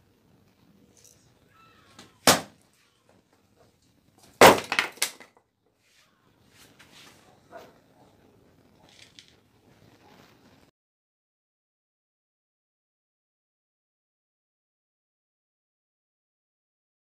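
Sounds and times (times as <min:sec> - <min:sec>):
axe striking a log: 0:02.2 - 0:02.6, 0:04.4 - 0:05.3.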